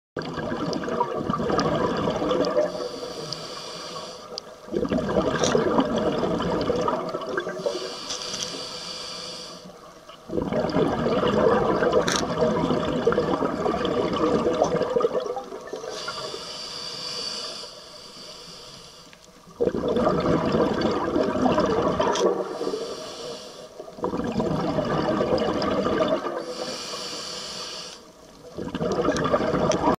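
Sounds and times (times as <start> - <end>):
regulator hissing inhale: 2.6 - 4.5, 7.6 - 9.9, 15.8 - 19.4, 22.4 - 23.9, 26.4 - 28.2
bubbling exhaust: 19.6 - 22.7, 24.0 - 26.6, 28.6 - 30.0.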